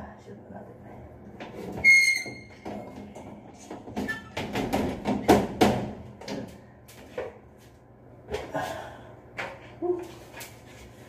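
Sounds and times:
panel knocking and rattling: 4.4s - 6.4s.

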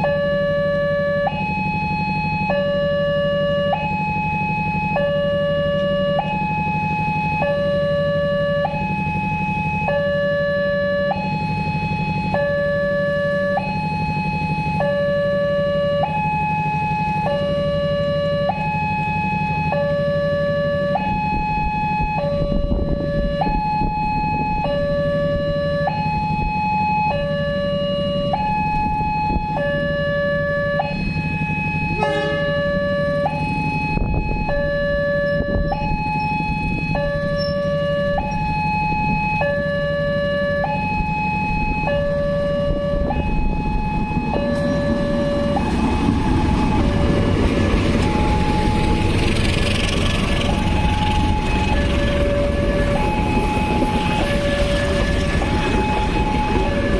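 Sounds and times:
level crossing two-tone alarm: 0.0s - 56.9s
train rumbling: 28.1s - 39.4s, 40.8s - 56.9s.

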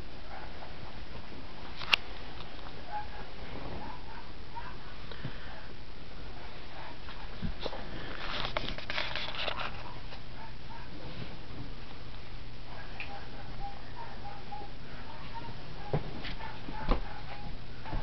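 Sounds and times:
rustling: 6.4s - 12.0s.

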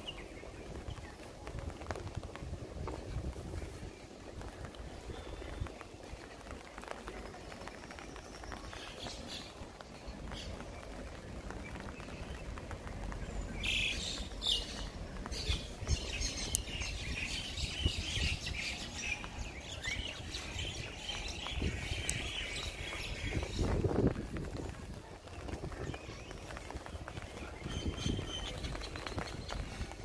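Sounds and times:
footsteps on wet pavement: 0.0s - 30.0s
birds chirping and singing: 13.2s - 24.1s.

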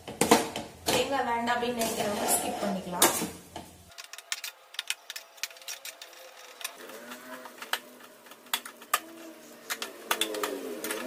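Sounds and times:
metal spatula scraping a pan: 1.8s - 3.0s.

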